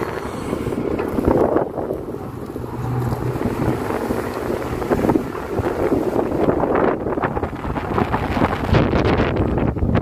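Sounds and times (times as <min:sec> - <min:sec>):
excavator diesel engine running: 0:00.0 - 0:07.2
wind buffeting microphone: 0:00.0 - 0:10.0.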